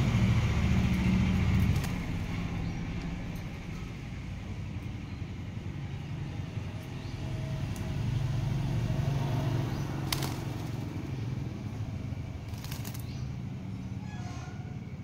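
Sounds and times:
bird feathers rustling: 0.8s - 2.4s, 10.0s - 11.0s, 12.4s - 13.2s.

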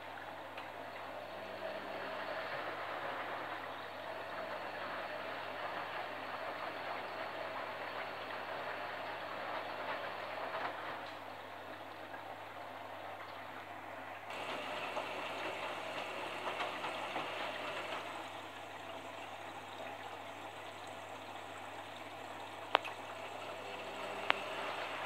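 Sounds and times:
washing machine hum: 0.0s - 25.0s
water sloshing in washing machine: 0.0s - 25.0s.

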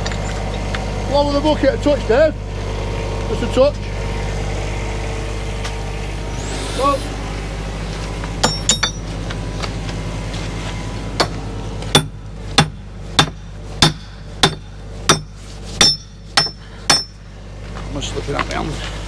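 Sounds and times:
excavator engine running: 0.0s - 19.0s
hammer striking metal: 8.4s - 9.1s, 11.9s - 17.2s.

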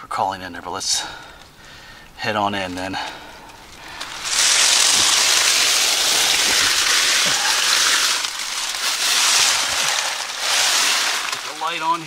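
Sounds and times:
dry leaves crunching and rustling: 3.5s - 12.0s.

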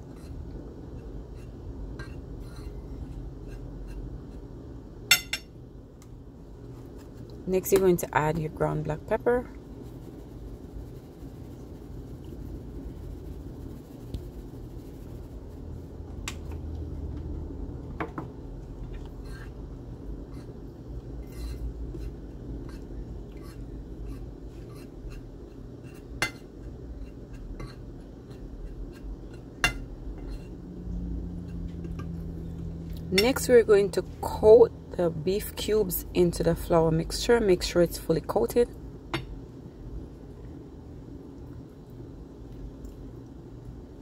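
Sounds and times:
low steady hum: 0.0s - 44.0s
fork scraping a ceramic plate: 1.3s - 4.4s, 19.0s - 19.6s, 21.2s - 22.1s, 22.7s - 30.6s.

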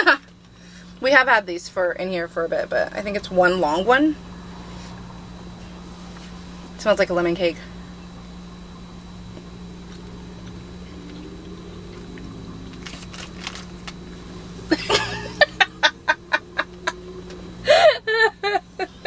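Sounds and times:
low steady hum: 0.0s - 19.0s
women laughing hard: 14.7s - 19.0s.

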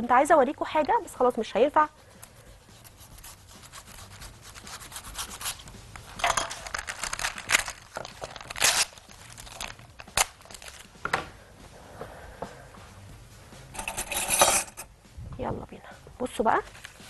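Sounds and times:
parchment paper rustling and tearing: 2.3s - 10.9s, 16.6s - 17.0s.

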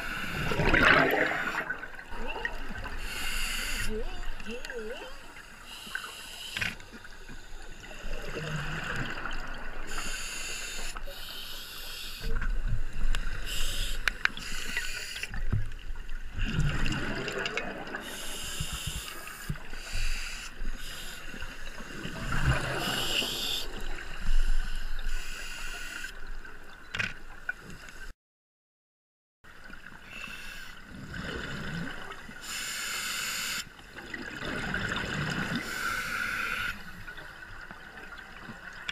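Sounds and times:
exhaled bubbles gurgling: 0.0s - 3.2s, 16.3s - 18.6s, 21.9s - 24.2s, 34.0s - 35.8s
scuba regulator breathing underwater: 2.9s - 3.9s, 35.5s - 36.9s.

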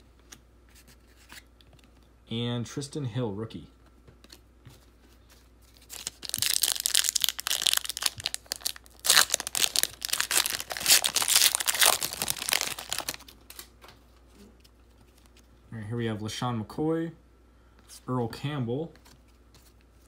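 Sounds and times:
foil wrapper crinkling: 5.7s - 13.7s.

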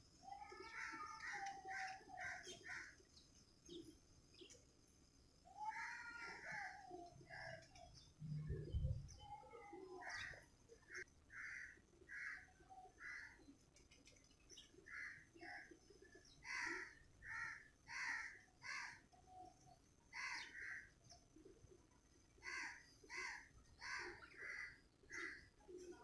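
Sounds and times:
sparrows chirping: 0.0s - 4.7s, 20.2s - 20.8s.

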